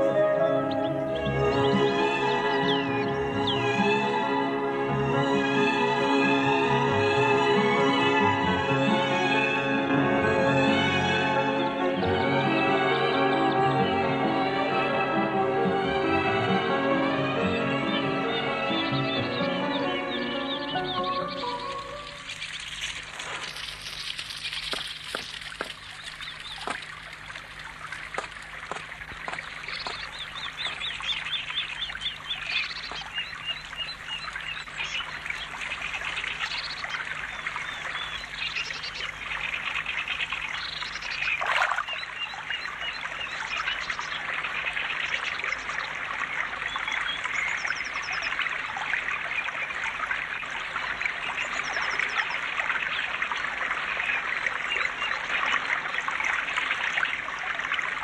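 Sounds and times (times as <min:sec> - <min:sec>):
small birds trilling: 0:00.0 - 0:04.0, 0:18.3 - 0:55.6
river babbling over stones: 0:21.3 - 0:58.0
water swish: 0:21.3 - 0:58.0.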